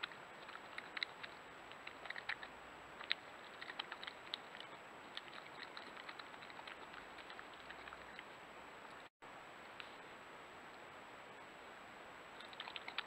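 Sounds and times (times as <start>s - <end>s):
animal rooting in gravel: 0.0s - 8.3s
faint hiss: 0.0s - 13.0s.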